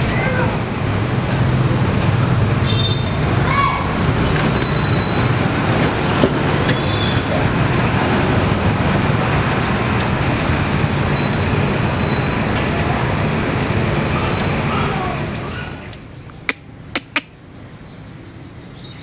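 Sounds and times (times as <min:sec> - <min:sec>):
loud background rumble: 0:00.0 - 0:19.0
budgerigar chirps: 0:16.4 - 0:17.4.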